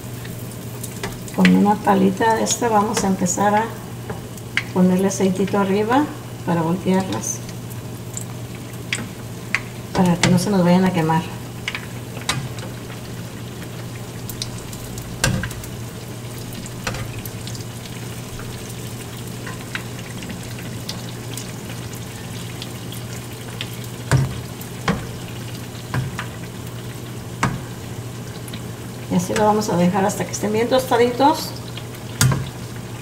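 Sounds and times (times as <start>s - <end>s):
batter deep-frying in oil: 0.0s - 33.0s
spatula knocking and scraping pan: 9.9s - 10.5s, 24.0s - 26.4s, 27.4s - 27.9s, 32.2s - 32.7s.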